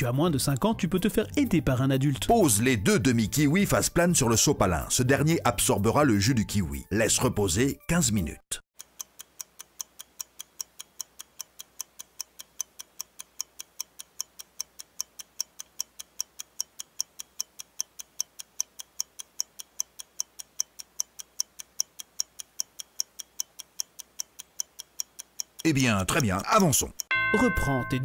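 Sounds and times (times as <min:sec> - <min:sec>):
clock ticking quickly: 0:08.8 - 0:28.0.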